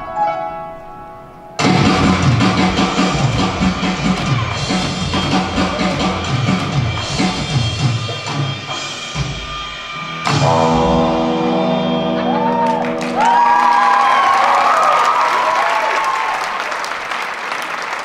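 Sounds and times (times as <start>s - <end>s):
rock band playing: 1.6s - 13.9s
audience whooping and clapping: 12.0s - 18.0s.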